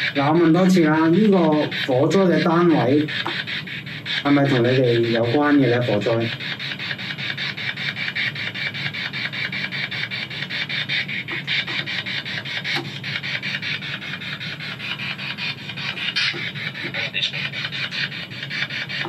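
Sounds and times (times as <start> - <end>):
chopped bursts of radio static: 16.1 - 17.6.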